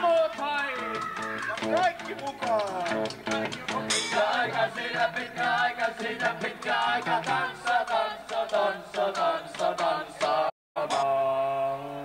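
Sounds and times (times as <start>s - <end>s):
live band playing fast beat: 0.0s - 9.0s
voices singing along: 2.6s - 12.0s.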